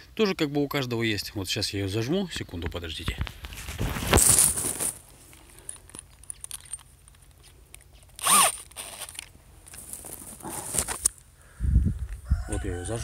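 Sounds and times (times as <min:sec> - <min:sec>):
camera rustling in grass: 0:03.0 - 0:11.2.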